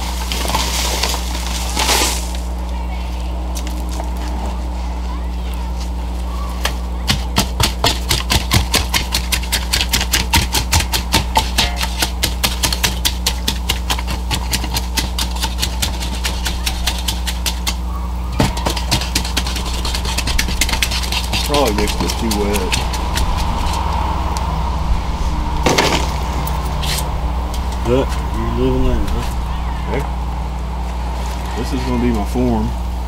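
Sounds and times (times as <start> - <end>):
wooden tool scraping wet mix in bucket: 8.1 - 17.8, 18.5 - 23.9
low hum: 15.3 - 33.0.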